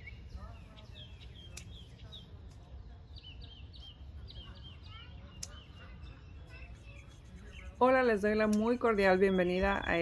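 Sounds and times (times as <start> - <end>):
songbird chirping: 0.0 - 10.0
scissors snipping stems: 1.5 - 1.8.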